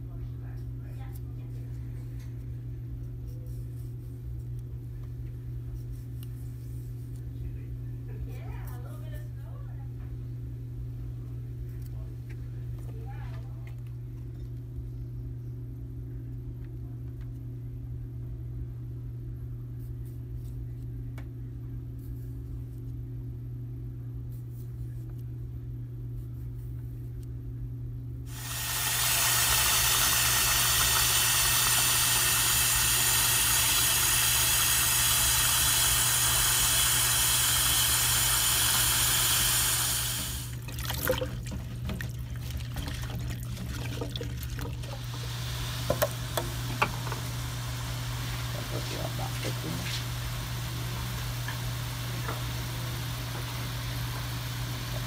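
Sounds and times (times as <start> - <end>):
tap water running into sink: 28.3 - 55.0
hands splashing in water: 40.5 - 45.0.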